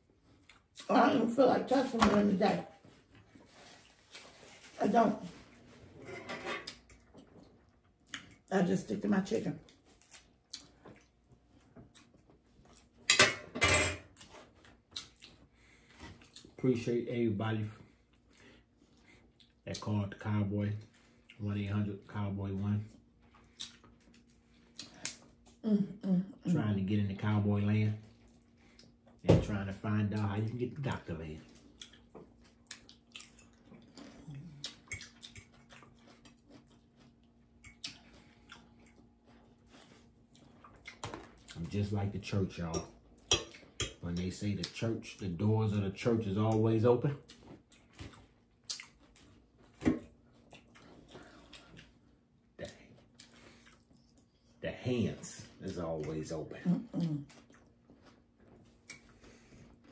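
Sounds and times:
person chewing food: 0:00.0 - 0:00.9, 0:06.6 - 0:08.5, 0:09.6 - 0:13.1, 0:14.1 - 0:16.9, 0:17.8 - 0:19.8, 0:20.8 - 0:21.6, 0:22.8 - 0:25.6, 0:28.0 - 0:29.2, 0:30.1 - 0:41.9, 0:42.6 - 0:44.8, 0:47.2 - 0:54.6, 0:55.6 - 0:59.9
cutlery and dishes clinking: 0:13.0 - 0:14.2
dishes clattering: 0:13.1 - 0:14.1.

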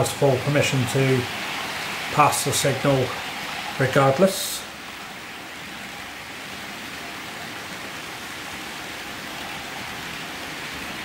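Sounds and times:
model trains running on track: 0:00.0 - 0:05.0.

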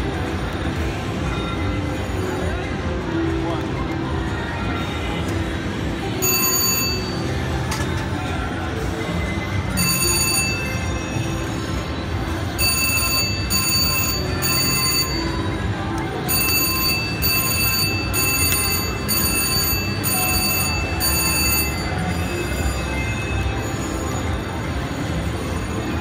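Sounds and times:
casino crowd murmur: 0:00.0 - 0:26.0
slot machine electronic chiming: 0:06.0 - 0:26.0.

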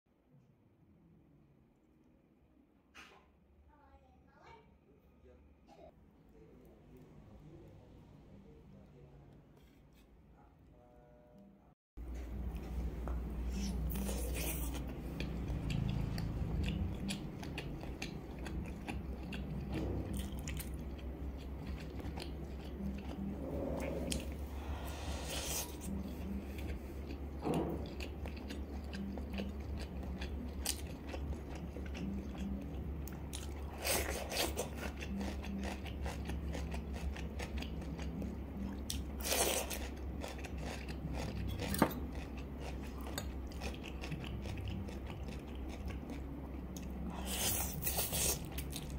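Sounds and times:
steady low hum: 0:04.7 - 0:48.9
wet chewing and biting: 0:25.1 - 0:48.9.

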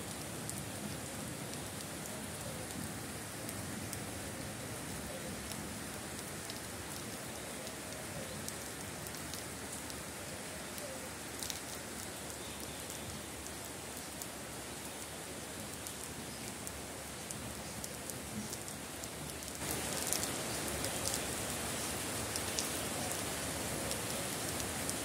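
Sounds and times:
rain on plants and water: 0:00.0 - 0:25.0.

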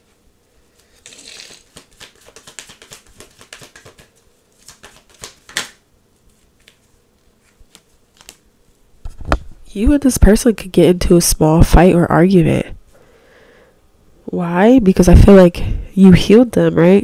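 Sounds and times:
cards being shuffled: 0:00.7 - 0:08.5
card snapping: 0:01.1 - 0:05.8.

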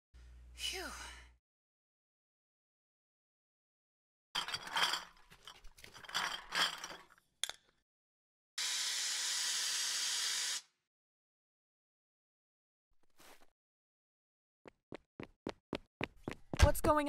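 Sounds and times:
cups and dishes clinking: 0:04.4 - 0:07.6.

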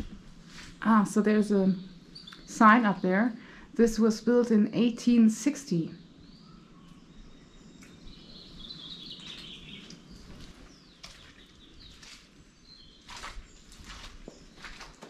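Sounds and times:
bird chirping song: 0:00.8 - 0:15.0
footstep scuffing on gritty ground: 0:10.2 - 0:15.0.

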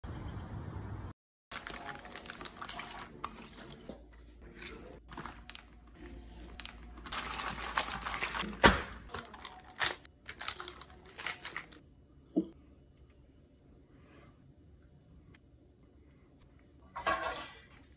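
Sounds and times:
plastic bag crinkling: 0:01.5 - 0:03.8, 0:04.6 - 0:11.8.

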